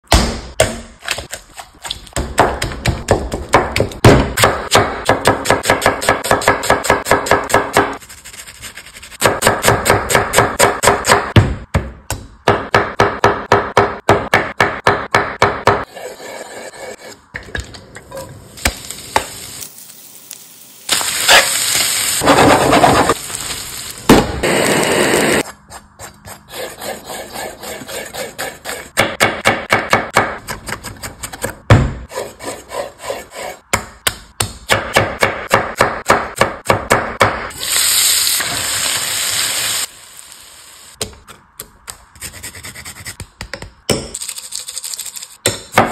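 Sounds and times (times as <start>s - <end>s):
chicken sizzling in pan: 18.6s - 24.1s, 37.6s - 41.0s.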